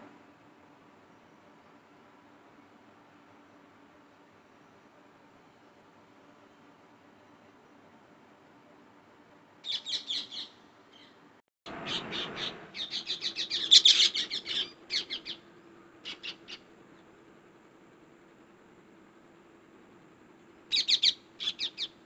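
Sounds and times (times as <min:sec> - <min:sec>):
parakeets screeching: 0:11.7 - 0:15.4, 0:16.0 - 0:16.6.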